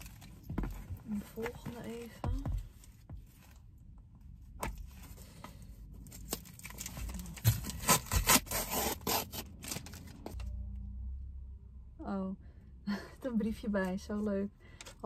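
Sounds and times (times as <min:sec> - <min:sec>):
cardboard ripping and scraping: 0:06.5 - 0:10.2.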